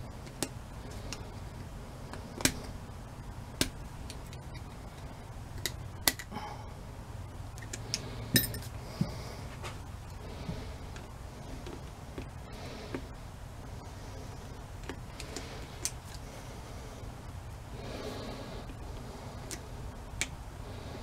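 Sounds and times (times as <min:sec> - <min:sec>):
steady low hum: 0:00.0 - 0:21.0
metal tools clicking on metal parts: 0:07.6 - 0:08.7.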